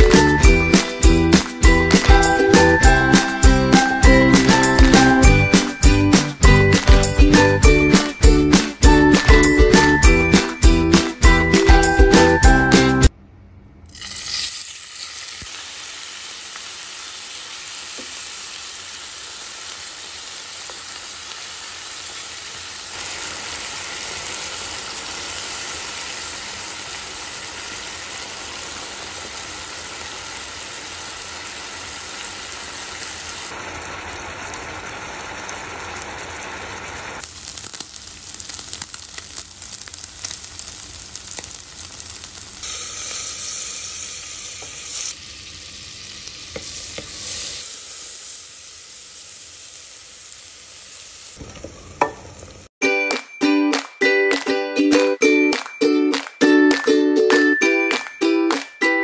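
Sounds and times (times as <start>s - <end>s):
sharp crackles of frying: 0.0s - 12.4s, 13.9s - 52.7s
chicken frying in oil: 14.0s - 52.7s.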